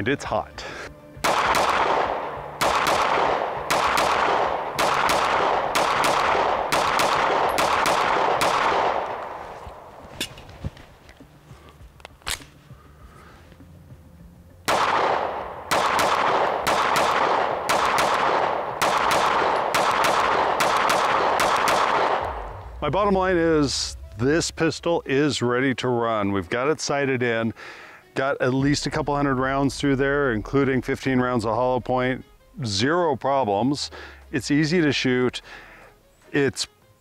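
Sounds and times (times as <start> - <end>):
pistol firing rapid shots: 1.2 - 9.4, 14.7 - 22.6.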